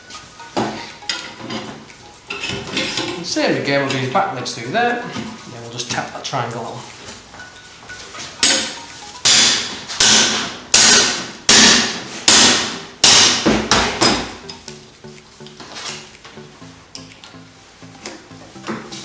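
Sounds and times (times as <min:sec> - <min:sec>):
metal mallet hammering: 0:08.4 - 0:14.7.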